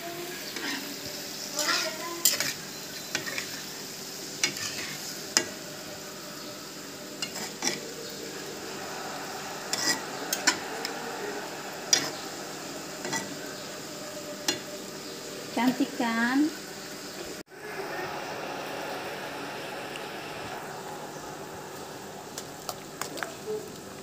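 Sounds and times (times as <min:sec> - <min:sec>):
vegetables hissing in a hot pan: 0:00.0 - 0:24.0
spatula scraping a wok: 0:00.4 - 0:05.6, 0:07.2 - 0:15.0.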